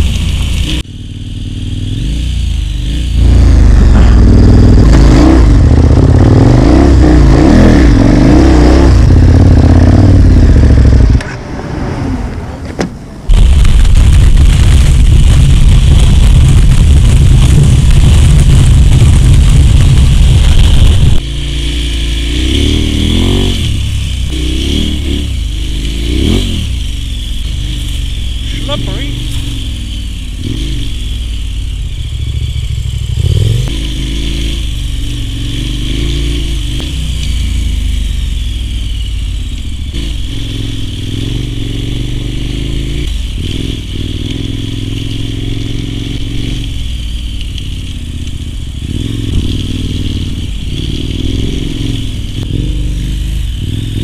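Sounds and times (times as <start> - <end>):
motorcycle engine revving: 0.0 - 12.6, 13.2 - 54.0
wind rush on microphone: 11.6 - 21.2.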